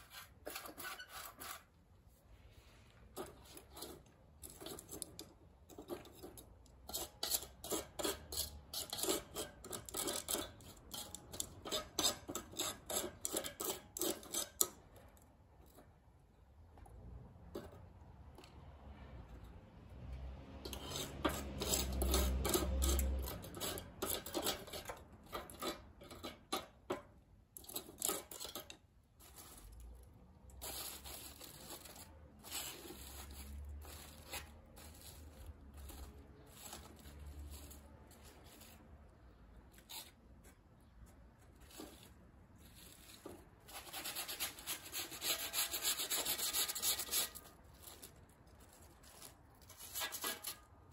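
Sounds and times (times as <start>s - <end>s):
charcoal crackling: 27.6s - 39.1s, 39.7s - 50.9s.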